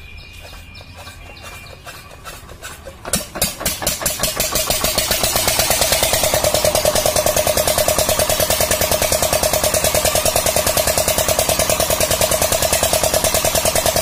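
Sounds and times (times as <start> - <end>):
diesel engine chugging: 0.0 - 14.0
engine being hand-cranked: 0.3 - 14.0.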